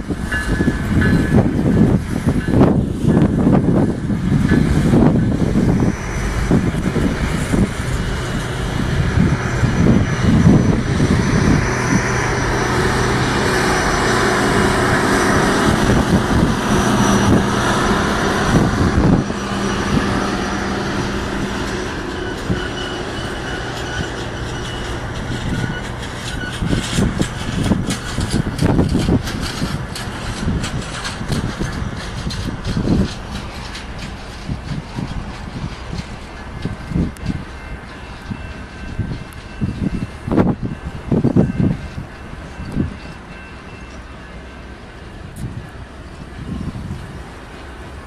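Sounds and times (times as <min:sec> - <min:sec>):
train wheels rumbling on rails: 0:00.0 - 0:48.0
high-pitched wheel squeals: 0:04.5 - 0:29.7.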